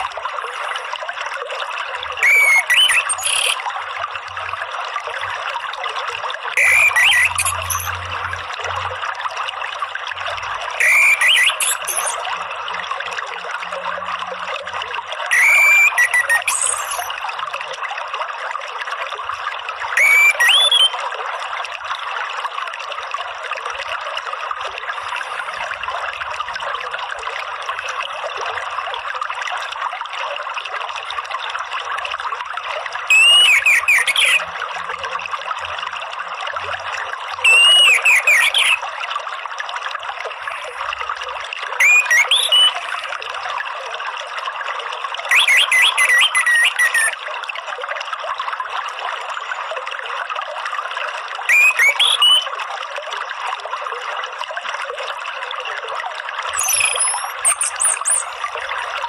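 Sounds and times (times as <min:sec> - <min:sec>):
flowing water rushing: 0:00.0 - 0:59.0
thrush singing whistled notes: 0:02.2 - 0:03.6, 0:06.6 - 0:08.1, 0:10.8 - 0:12.2, 0:15.3 - 0:17.1, 0:20.0 - 0:21.0, 0:33.1 - 0:34.5, 0:37.4 - 0:38.8, 0:41.8 - 0:43.0, 0:45.3 - 0:47.2, 0:51.5 - 0:52.5, 0:56.6 - 0:58.8.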